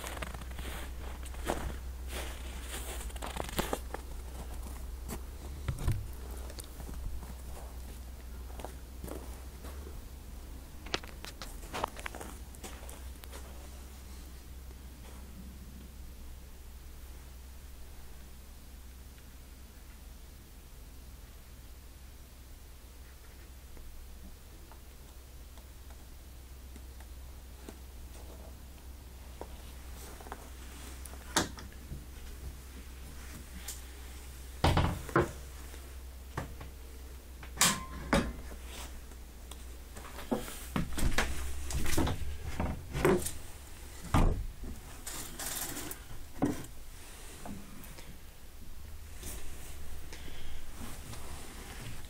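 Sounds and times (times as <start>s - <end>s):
low steady hum: 0.0s - 52.0s
wooden and metal fittings clattering: 45.0s - 46.7s.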